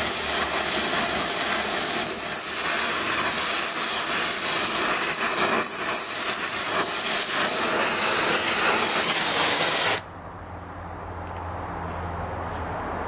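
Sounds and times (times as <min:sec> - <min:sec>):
torch flame hissing: 0:00.0 - 0:10.1.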